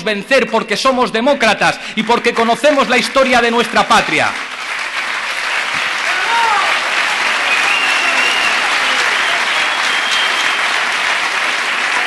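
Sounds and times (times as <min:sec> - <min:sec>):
audience applauding: 0:01.9 - 0:12.0
high whistles: 0:07.4 - 0:10.9.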